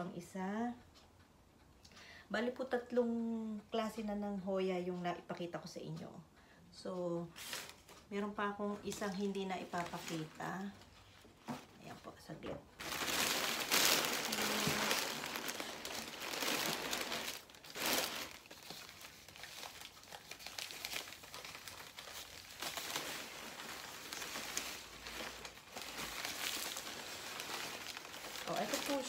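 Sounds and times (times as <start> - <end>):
packing paper crumpling: 12.8 - 29.0.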